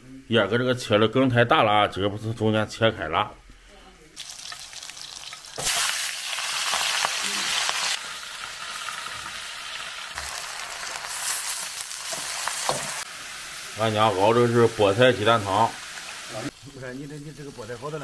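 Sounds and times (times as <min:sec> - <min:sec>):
spinach sizzling in hot oil: 0:04.2 - 0:18.0.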